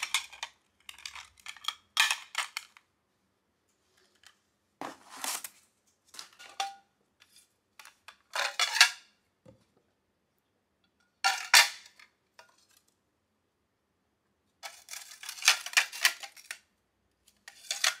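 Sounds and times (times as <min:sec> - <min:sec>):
glass plates clinking and scraping: 0:17.5 - 0:18.0.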